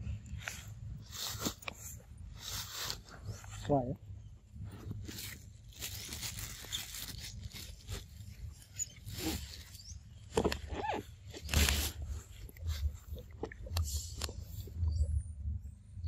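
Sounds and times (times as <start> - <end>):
grass and leaves rustling: 0.4 - 3.8, 4.6 - 13.4.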